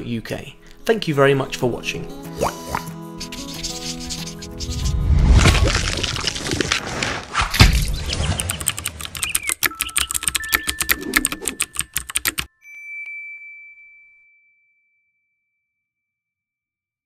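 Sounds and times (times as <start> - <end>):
wet splat impact: 5.2 - 6.8
typewriter-like clicks: 8.3 - 12.5.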